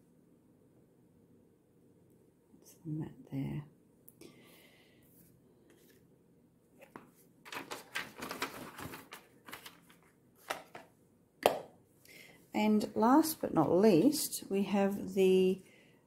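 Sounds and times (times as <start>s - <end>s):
plastic sheet crinkling: 6.8s - 10.8s.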